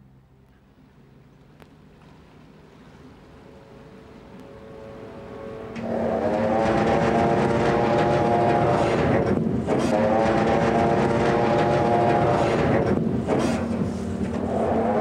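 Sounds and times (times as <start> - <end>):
boat diesel engine running: 4.7 - 15.0.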